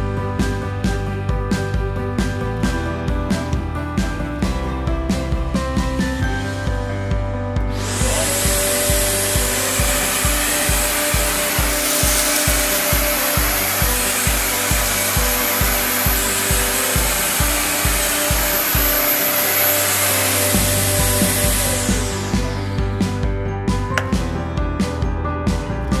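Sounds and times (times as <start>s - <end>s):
background music with steady beat: 0.0s - 26.0s
vacuum motor whining: 7.6s - 23.2s.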